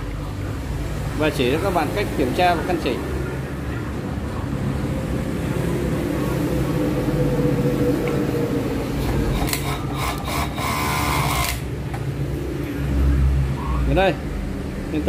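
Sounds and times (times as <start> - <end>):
overlock sewing machine humming: 9.3 - 11.7.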